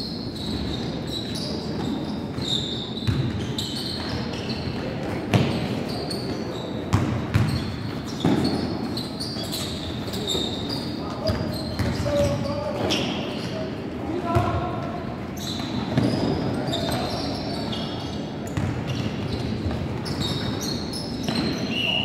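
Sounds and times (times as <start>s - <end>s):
sneakers squeaking on gym floor: 0.0s - 22.0s
basketball bouncing: 3.0s - 3.4s, 5.3s - 5.6s, 6.9s - 8.6s, 11.3s - 12.3s, 18.6s - 20.4s.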